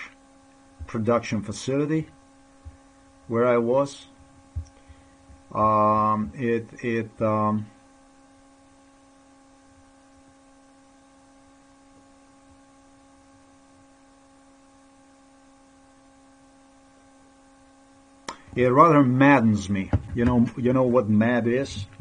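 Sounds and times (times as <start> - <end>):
faint electrical hum: 0.0 - 22.0
man's voice: 18.5 - 22.0.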